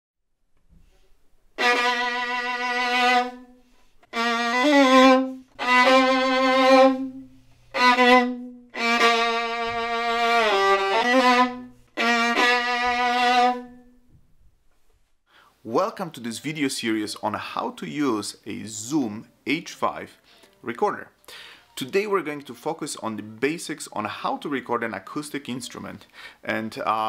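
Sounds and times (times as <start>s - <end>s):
solo violin low notes: 1.6s - 14.0s.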